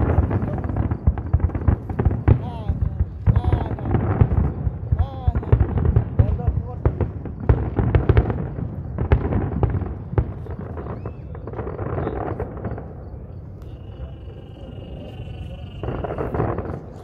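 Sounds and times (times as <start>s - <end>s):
fireworks bangs and crackles: 0.0s - 17.0s
steady high-pitched tone: 13.4s - 16.4s.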